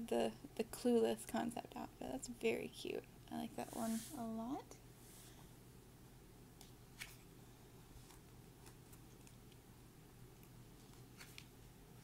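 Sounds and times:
low room hum: 0.0 - 12.0
paper pages turning: 7.0 - 7.3, 8.0 - 9.5, 10.8 - 11.5.

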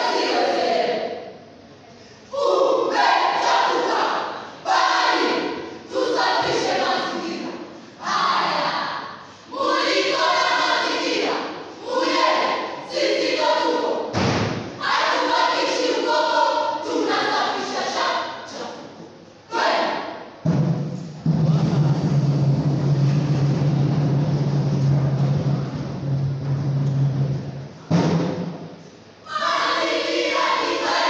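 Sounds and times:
group reciting in unison: 0.0 - 1.4, 2.3 - 20.4, 29.2 - 31.0
thump: 14.1 - 14.8, 27.9 - 28.6.

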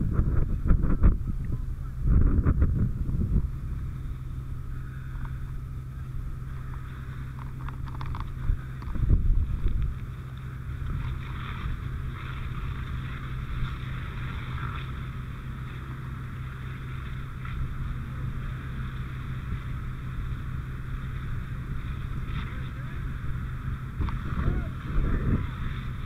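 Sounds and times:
constant low rumble: 0.0 - 26.0.

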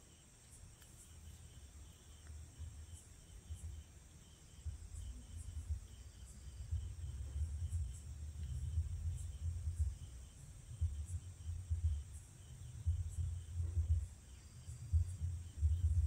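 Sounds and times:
insects trilling: 0.0 - 16.0
wind rumble on microphone: 4.6 - 16.0.

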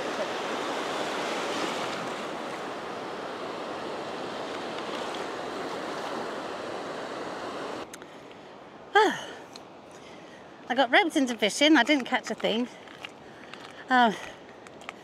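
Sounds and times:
small waves breaking on shore: 0.0 - 7.9.

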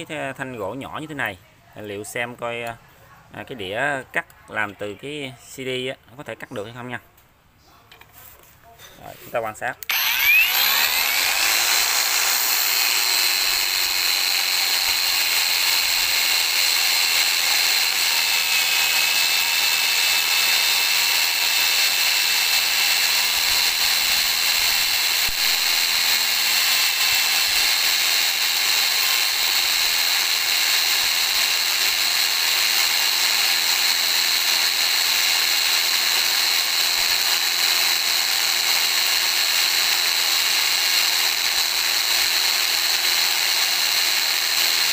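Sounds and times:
angle grinder whining: 9.8 - 44.9.

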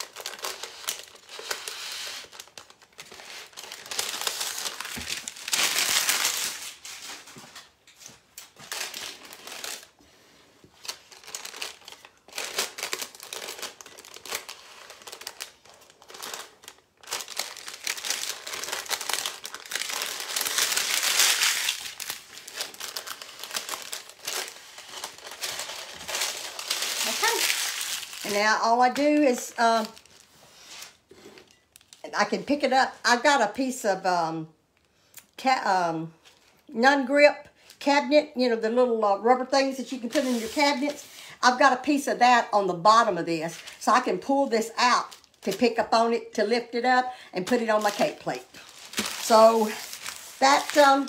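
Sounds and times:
paper crinkling and rustling: 0.0 - 32.0, 40.0 - 41.0, 47.5 - 51.0.

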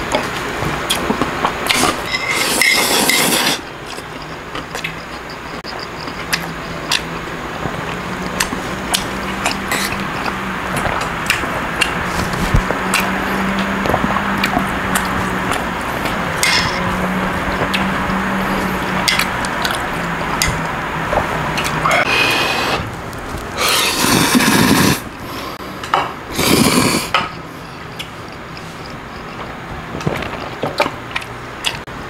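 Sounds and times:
person slurping noodles: 1.7 - 4.2, 21.8 - 22.9, 23.6 - 25.6, 26.3 - 27.2
utensils scraping noodles: 1.7 - 6.5, 8.9 - 10.4, 23.6 - 25.1, 26.3 - 29.5
utensils clicking against dishes: 16.4 - 17.9, 19.0 - 19.8.

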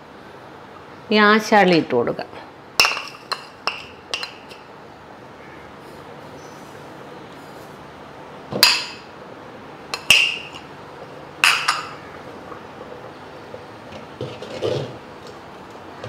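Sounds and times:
steel spoon clinking on pot: 2.8 - 4.6, 9.9 - 10.7, 11.4 - 12.0.

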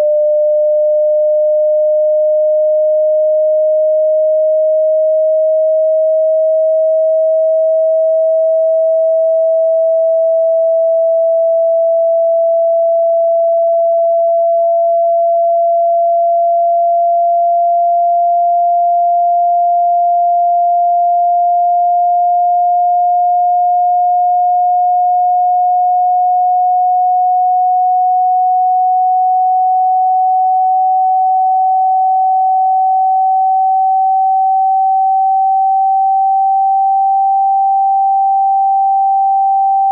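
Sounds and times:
rising sine tone: 0.0 - 39.9.

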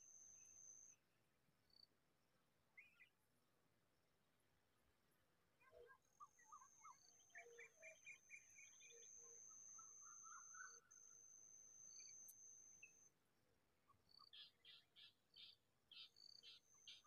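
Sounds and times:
songbird chirping: 2.7 - 3.2, 5.6 - 13.2, 13.8 - 17.0.

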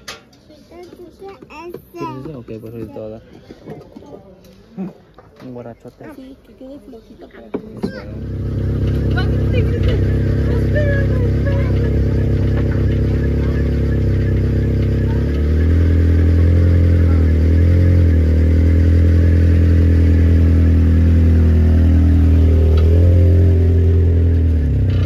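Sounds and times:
car engine running: 7.8 - 25.0.

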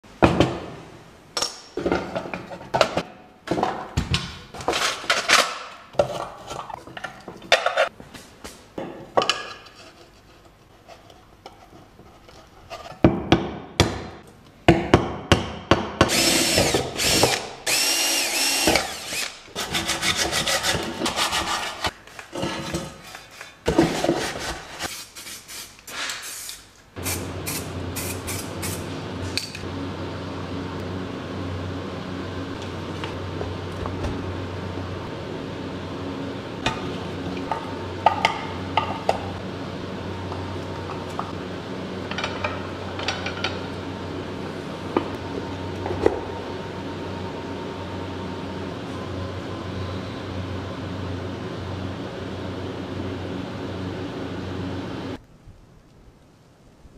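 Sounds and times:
cordless drill on metal: 16.1 - 19.5.

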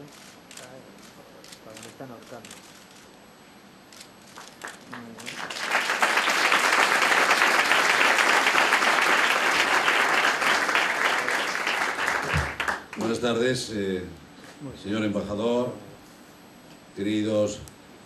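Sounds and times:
audience applauding: 4.3 - 13.2.

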